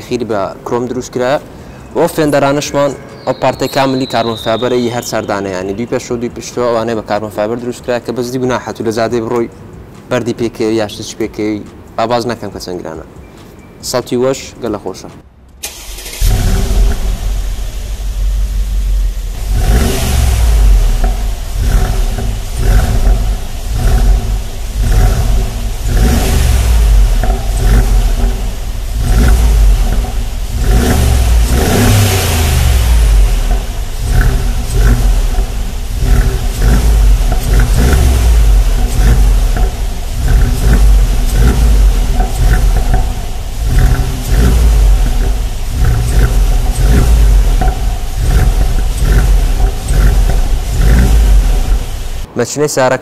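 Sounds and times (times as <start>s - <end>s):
car engine revving: 2.1s - 7.8s, 15.6s - 52.3s.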